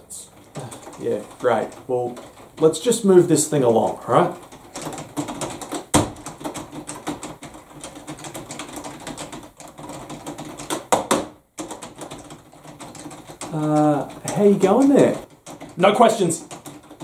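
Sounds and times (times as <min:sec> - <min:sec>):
fingers clicking and tapping device: 0:00.2 - 0:03.0, 0:03.6 - 0:17.0
loud knocks: 0:04.4 - 0:14.4.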